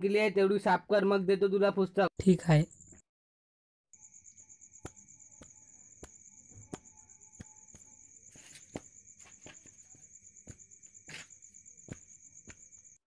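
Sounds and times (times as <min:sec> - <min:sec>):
insects chirring: 0:03.9 - 0:13.0
footsteps on paved path: 0:06.6 - 0:13.0.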